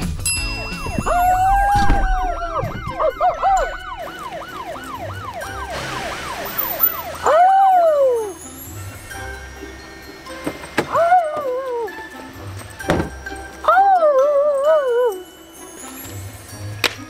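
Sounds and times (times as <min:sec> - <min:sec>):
police siren wailing and yelping: 0:00.4 - 0:08.4.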